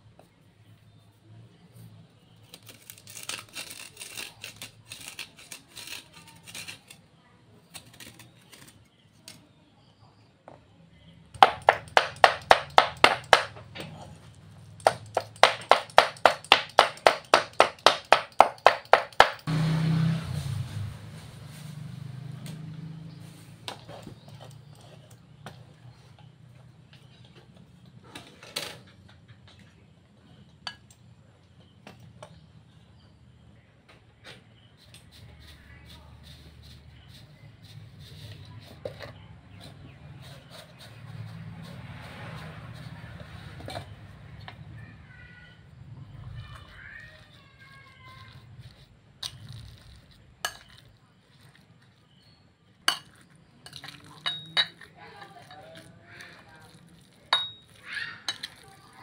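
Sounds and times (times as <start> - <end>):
metal spoon clinking on bowl: 49.3 - 51.6, 52.9 - 55.9, 56.7 - 58.6
utensils scraping dishes: 52.9 - 58.9.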